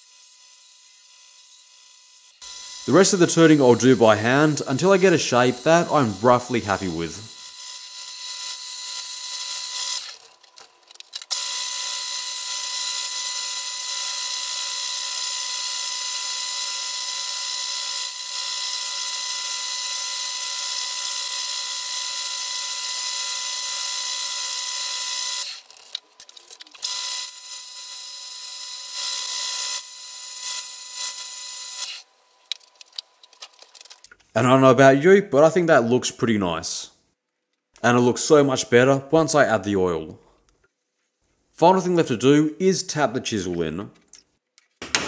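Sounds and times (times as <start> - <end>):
lathe whine: 0.0 - 10.3
chisel cutting wood on lathe: 0.0 - 32.1.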